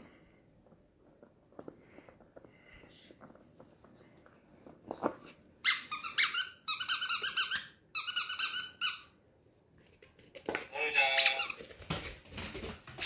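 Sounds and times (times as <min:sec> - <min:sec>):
faint taps and rustles: 0:00.1 - 0:05.4
squeaky rubber ball squeaking: 0:05.6 - 0:09.2.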